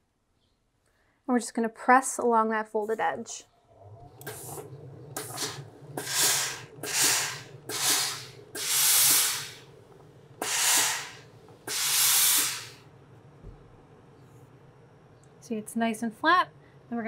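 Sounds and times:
steady low hum: 2.3s - 17.0s
steam iron hissing bursts: 5.2s - 9.7s, 10.4s - 12.8s.

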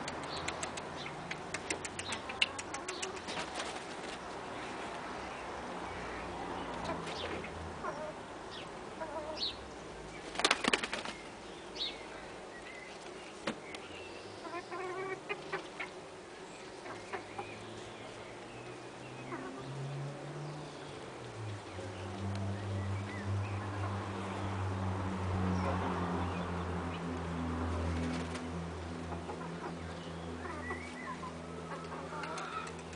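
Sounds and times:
chicken flapping wings: 1.5s - 4.2s, 10.2s - 11.2s, 27.9s - 28.5s.

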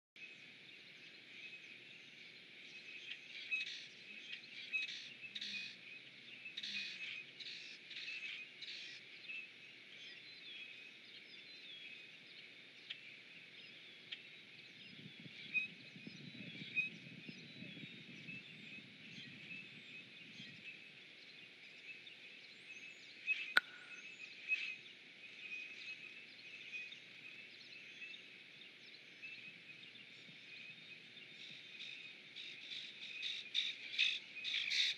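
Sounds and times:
sharp click: 23.6s - 24.0s.

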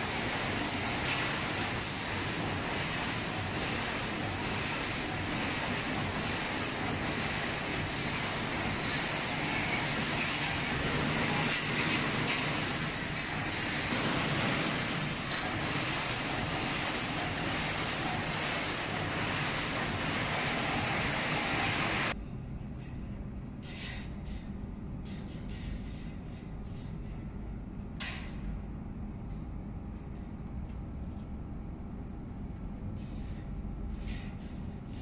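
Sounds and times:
welding machine line running: 0.0s - 22.2s.

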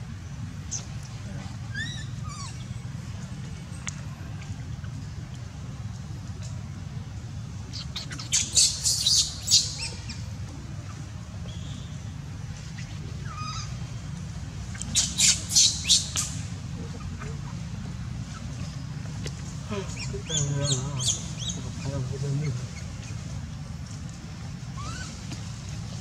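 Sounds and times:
baby monkey screeching: 1.7s - 2.7s, 7.7s - 10.2s, 13.2s - 13.8s, 14.7s - 16.4s, 19.9s - 21.9s, 24.7s - 25.2s.

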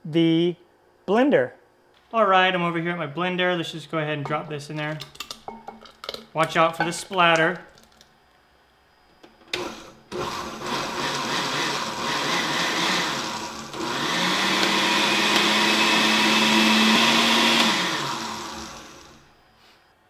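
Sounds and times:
blender motor pureeing: 9.5s - 19.3s.

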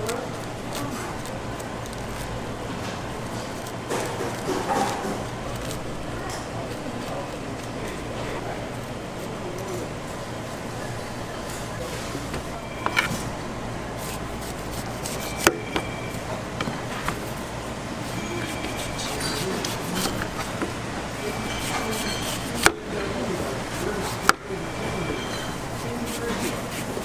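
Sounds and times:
steady background hum: 0.0s - 27.0s
knife cutting on board: 18.4s - 20.8s.

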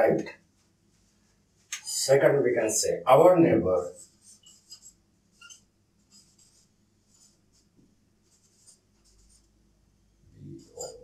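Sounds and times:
marker pen scratching on whiteboard: 3.5s - 9.5s, 10.5s - 11.0s.

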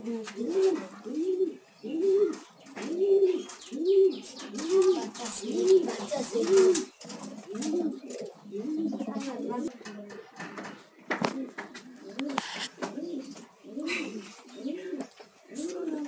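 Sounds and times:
pigeon cooing: 0.0s - 16.0s
faint scratchy clicks: 9.1s - 13.5s.

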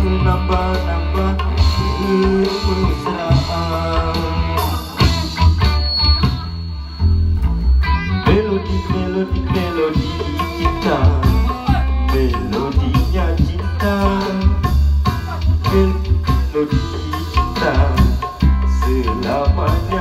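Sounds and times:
bass guitar line: 0.0s - 20.0s
electric guitar with effects: 0.0s - 20.0s
hand drum: 8.3s - 20.0s.

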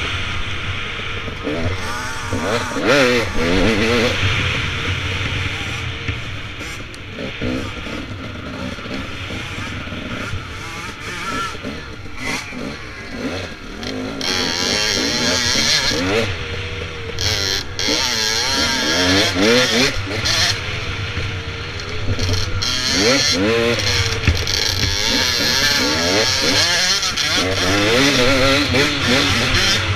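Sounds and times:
dirt bike engine revving: 0.0s - 29.9s.

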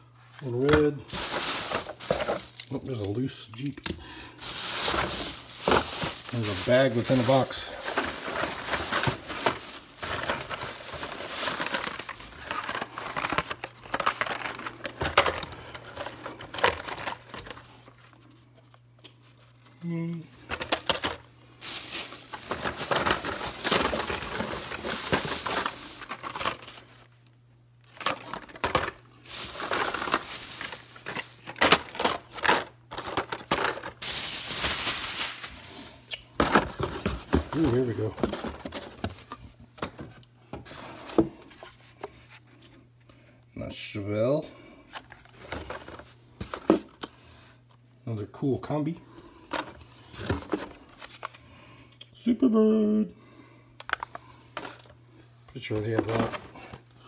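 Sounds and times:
plastic and cardboard rustling: 0.1s - 19.7s, 20.4s - 42.8s, 44.9s - 47.1s, 49.5s - 51.5s, 53.8s - 56.9s
plastic bag crinkling: 0.4s - 3.7s, 4.3s - 17.8s, 20.5s - 39.2s.

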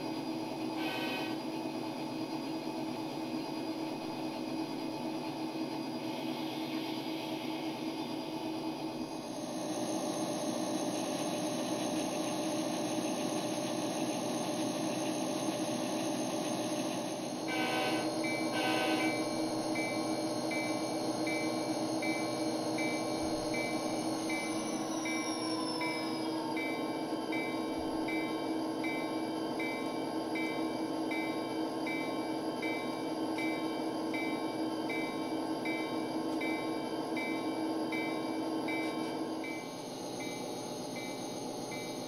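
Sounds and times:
diesel locomotive engine running: 0.0s - 42.0s
locomotive horn blasts: 0.8s - 1.4s, 17.5s - 19.2s
locomotive bell ringing: 17.4s - 40.4s.

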